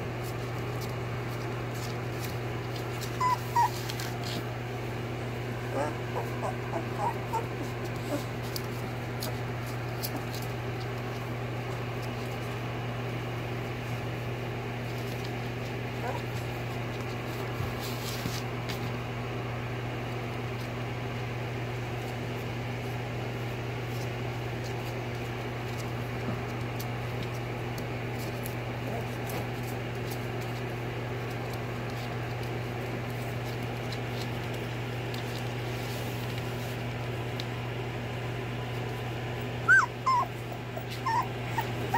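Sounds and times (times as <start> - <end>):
puppies whimpering: 2.7 - 4.4, 5.6 - 8.6, 15.9 - 16.6, 39.4 - 41.9.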